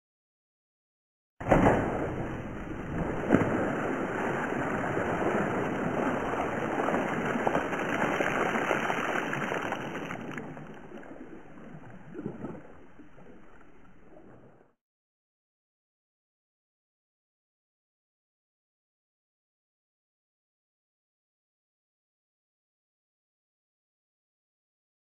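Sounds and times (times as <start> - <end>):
sharp water splash: 1.4 - 14.6
water pouring and splashing: 1.4 - 14.6.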